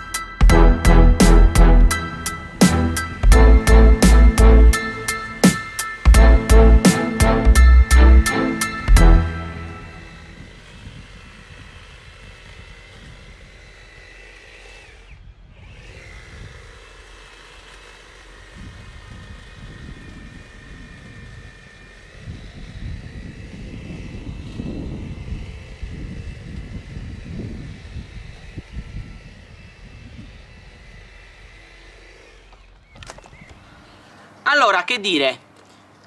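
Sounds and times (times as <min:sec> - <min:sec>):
low rumbling noise: 0:00.0 - 0:11.2
hedge trimmer whine: 0:00.0 - 0:36.0.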